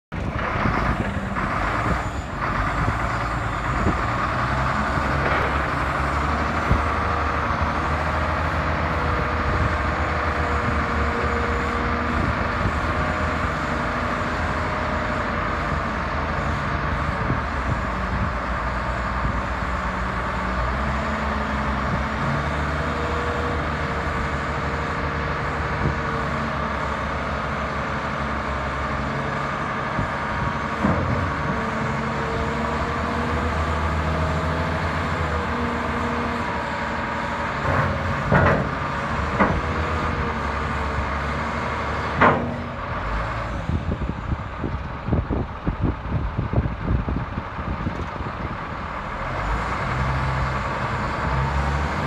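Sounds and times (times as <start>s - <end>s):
wheel loader diesel engine running: 0.1s - 52.0s.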